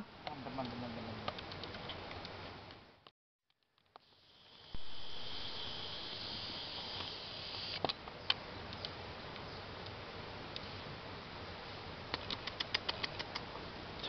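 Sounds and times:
soft hiss: 3.8s - 14.0s
high-pitched insect drone: 4.1s - 7.8s.

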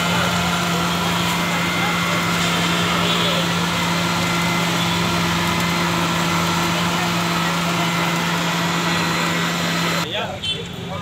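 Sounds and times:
blender running: 0.0s - 10.1s.

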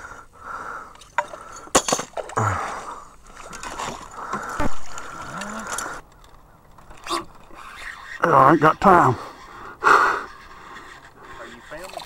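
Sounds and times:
water splashing: 2.1s - 5.9s.

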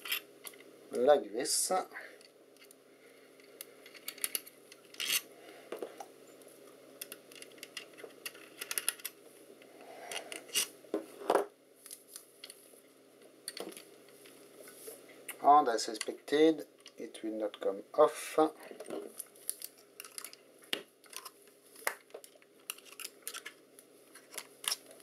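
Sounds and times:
small metal parts clicking: 3.8s - 5.2s, 7.0s - 9.2s, 19.5s - 20.4s, 21.0s - 21.4s, 22.2s - 23.6s.

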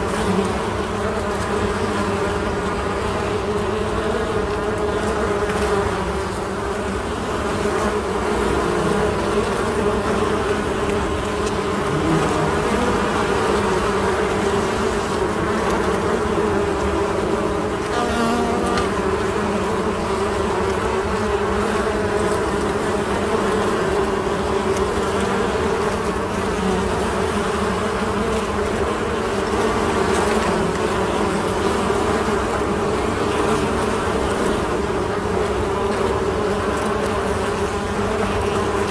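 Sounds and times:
bees buzzing: 0.0s - 38.9s.

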